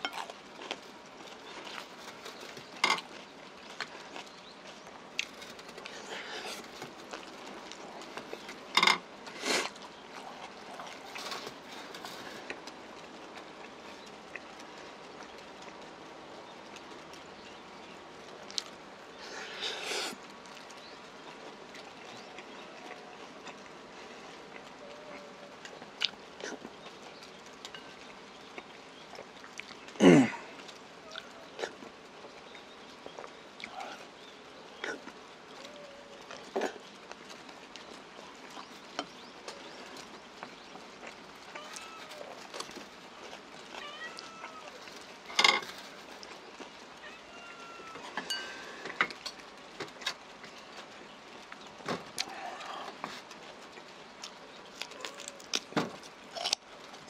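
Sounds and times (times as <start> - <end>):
person chewing: 0.0 - 15.8, 56.3 - 56.7
soft chewing: 0.0 - 57.0.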